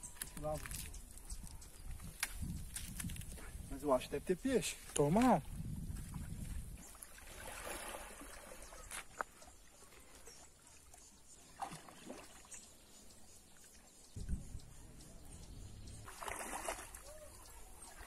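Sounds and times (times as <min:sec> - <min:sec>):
pond water sloshing: 0:04.8 - 0:13.9, 0:15.9 - 0:18.0.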